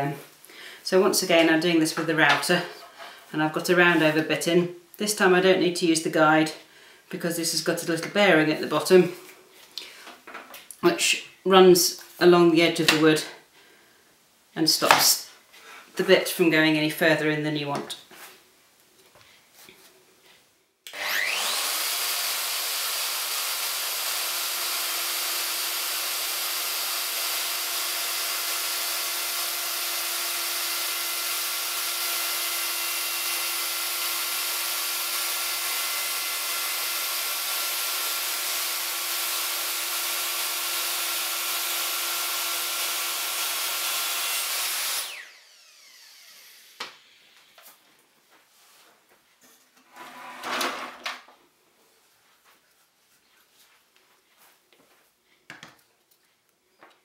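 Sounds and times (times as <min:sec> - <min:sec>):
electric router cutting wood: 0:20.9 - 0:47.7.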